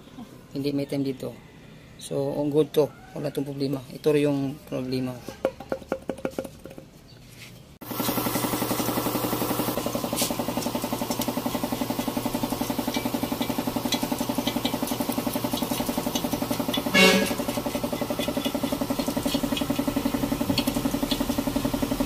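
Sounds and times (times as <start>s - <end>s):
engine idling: 7.9s - 22.0s
metal scraper clicking on engine: 10.1s - 22.0s
short loud pitched sound: 16.9s - 17.4s.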